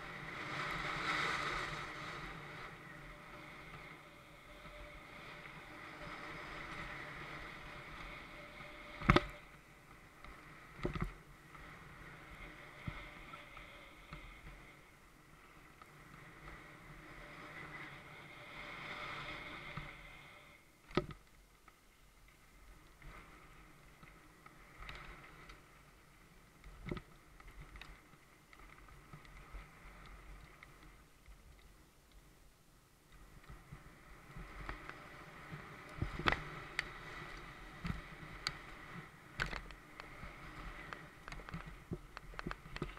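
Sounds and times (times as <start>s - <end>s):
bike tyres hissing on dirt: 0.0s - 9.0s
bike rolling on dirt trail: 0.0s - 42.9s.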